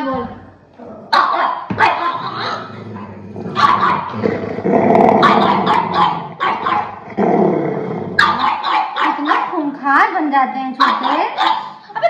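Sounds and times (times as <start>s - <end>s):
dog growling: 0.7s - 9.2s
dog barking: 1.1s - 2.6s, 3.6s - 4.2s, 5.2s - 7.0s, 8.2s - 9.7s, 10.8s - 11.8s.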